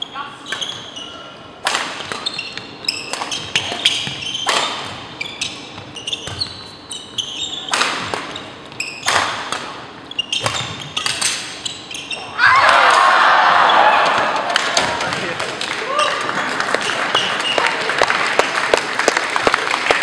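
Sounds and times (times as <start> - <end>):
sneakers squeaking on hardwood: 0.0 - 1.4, 2.0 - 12.4
racket hitting shuttlecock: 1.6 - 6.8, 7.5 - 11.7.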